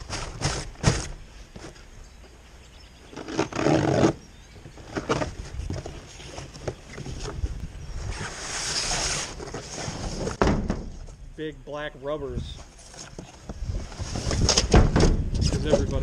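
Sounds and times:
cardboard tearing: 0:00.0 - 0:01.2, 0:03.1 - 0:04.2, 0:08.1 - 0:10.4
cardboard scraping and rustling: 0:00.0 - 0:01.8, 0:03.1 - 0:11.1, 0:12.6 - 0:16.0.

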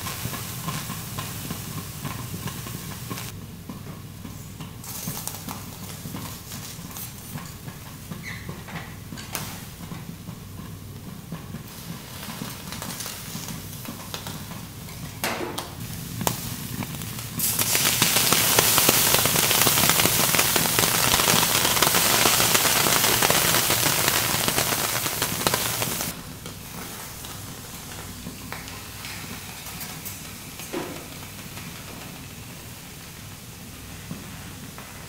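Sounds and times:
liquid sizzling on hot griddle: 0:00.0 - 0:03.4, 0:04.3 - 0:15.2, 0:15.8 - 0:35.0.

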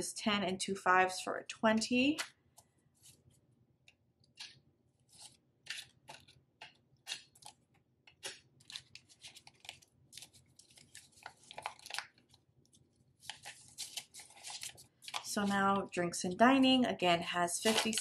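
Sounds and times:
banknotes rustling: 0:04.2 - 0:16.0, 0:17.5 - 0:18.0.

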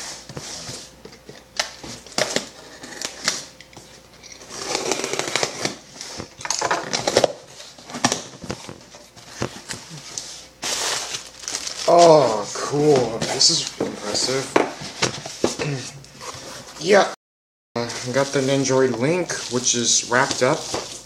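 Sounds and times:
cardboard scraping and tearing: 0:04.4 - 0:06.3, 0:09.3 - 0:14.5.

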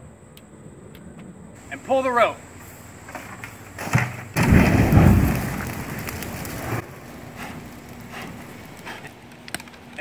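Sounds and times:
fire burning: 0:01.3 - 0:10.0
fire igniting whoosh: 0:04.4 - 0:09.8.

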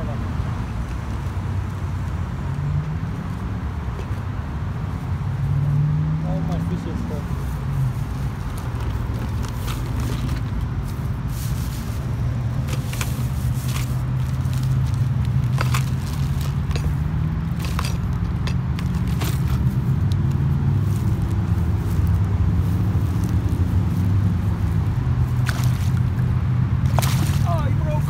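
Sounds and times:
lures rattling in tackle box: 0:15.4 - 0:19.6.

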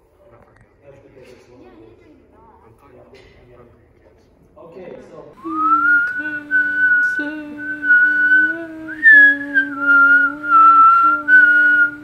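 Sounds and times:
person whistling a slow tune: 0:05.4 - 0:12.0.

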